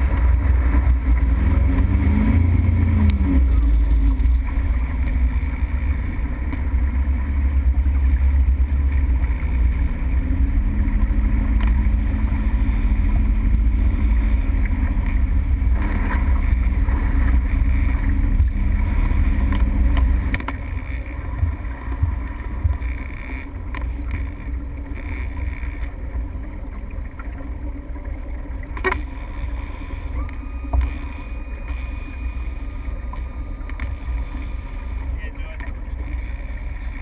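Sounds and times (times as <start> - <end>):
wind on microphone: 0.0 - 25.4
motorboat engine rumble: 0.0 - 37.0
water: 0.0 - 37.0.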